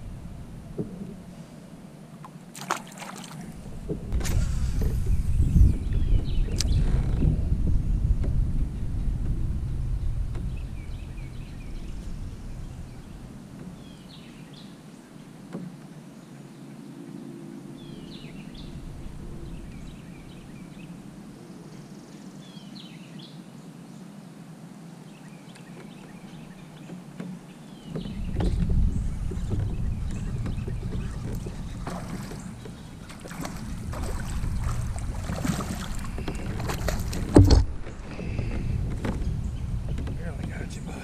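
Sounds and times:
low rumble: 3.5s - 13.5s, 28.1s - 41.0s
birds chirping: 4.9s - 7.2s, 9.9s - 23.4s, 25.1s - 41.0s.

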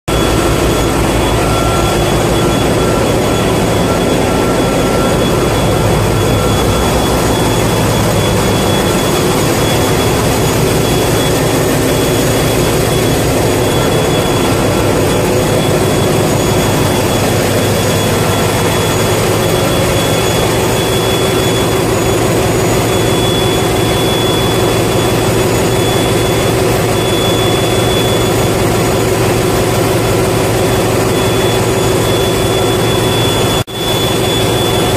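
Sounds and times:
engine room machinery drone: 0.0s - 34.9s
machinery whining tones: 0.1s - 34.9s.

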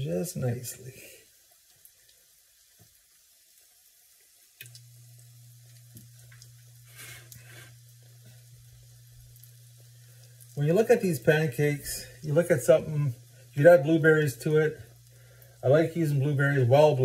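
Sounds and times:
batter sizzling in a pan: 0.0s - 17.0s
low electrical hum: 0.0s - 17.0s.

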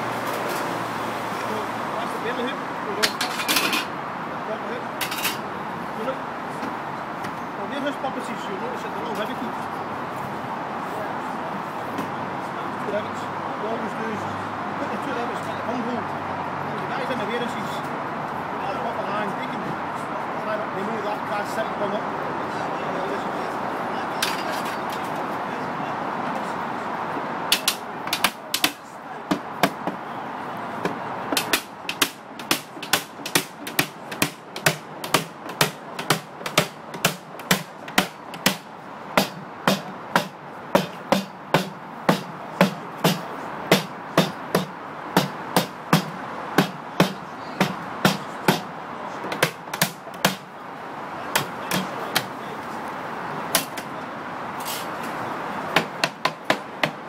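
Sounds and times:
hammer on metal hoop: 31.4s - 48.7s.

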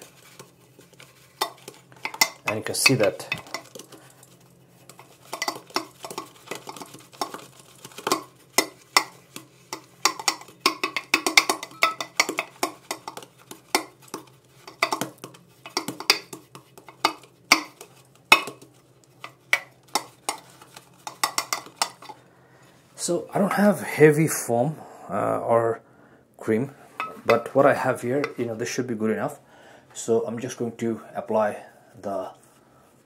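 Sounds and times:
brush clicking against metal bowl: 0.0s - 22.2s
shaving brush stirring lather: 0.0s - 22.2s.

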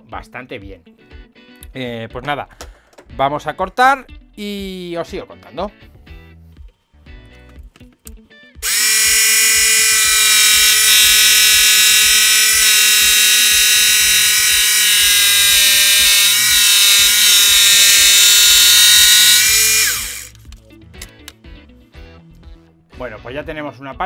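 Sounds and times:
saw motor whining: 8.6s - 20.4s.

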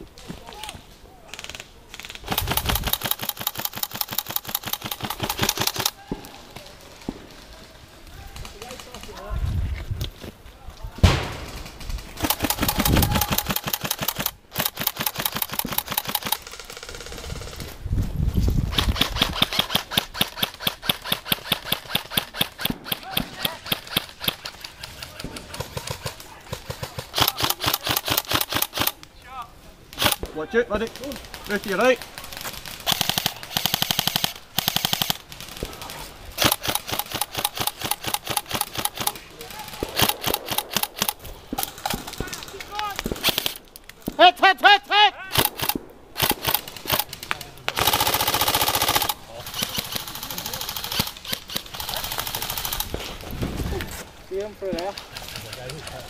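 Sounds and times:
airsoft rifle firing full auto: 2.2s - 6.0s, 11.1s - 17.6s, 18.7s - 26.1s, 26.7s - 29.0s, 30.0s - 30.3s, 32.6s - 35.7s, 36.4s - 43.6s, 45.3s - 47.1s, 47.7s - 53.0s.

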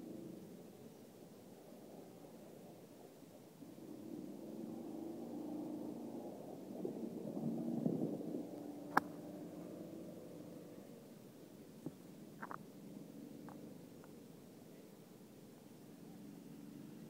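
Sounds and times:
low engine-like rumble: 0.0s - 17.0s
golf club striking ball: 8.9s - 9.2s.

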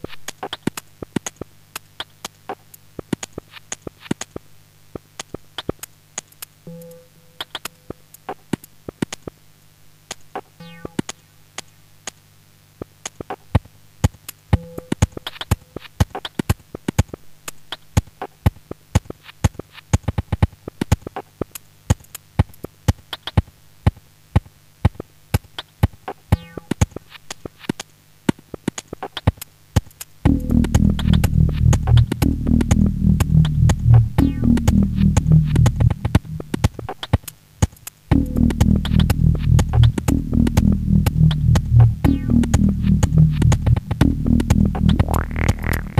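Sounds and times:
synthetic clicks and ticks: 10.1s - 11.7s, 24.4s - 45.9s
low synth drone: 30.3s - 36.9s, 38.1s - 45.9s
short synth tones: 41.2s - 45.9s.

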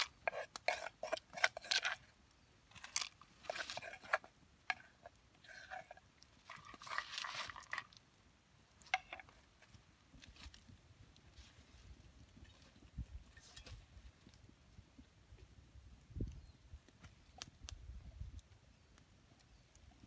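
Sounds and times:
spoon scraping shells: 0.0s - 2.1s, 2.7s - 7.9s.

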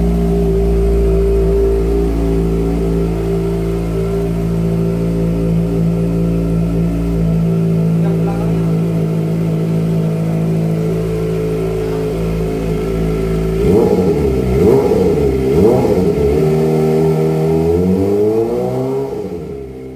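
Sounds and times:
motorcycle engine revving: 0.0s - 19.9s.

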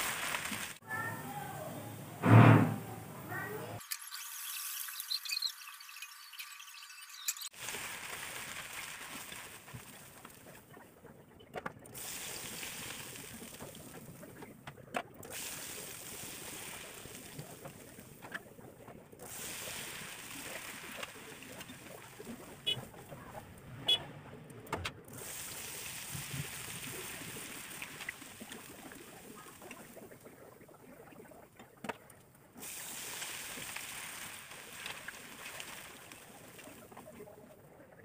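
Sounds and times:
potato sizzling in hot oil: 3.8s - 10.2s, 12.0s - 13.8s, 15.3s - 17.8s, 19.2s - 22.6s, 25.1s - 29.7s, 32.6s - 36.8s.

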